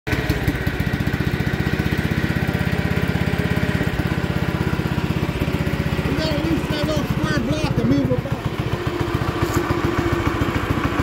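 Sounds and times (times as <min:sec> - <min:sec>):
garden tractor engine running: 0:00.1 - 0:11.0.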